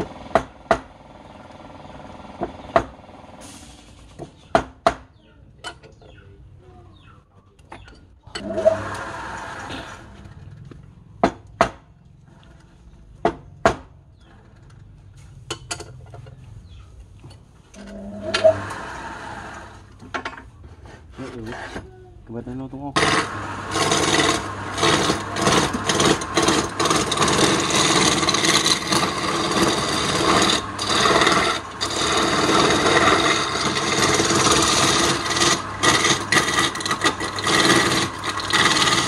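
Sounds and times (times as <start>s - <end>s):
lathe spinning with rising whine: 23.0s - 39.0s.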